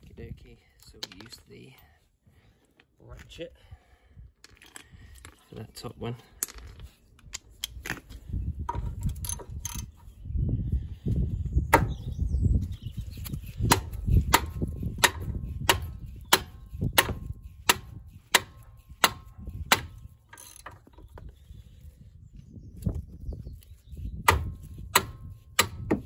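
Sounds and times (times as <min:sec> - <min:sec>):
wind on microphone: 0:06.6 - 0:26.0.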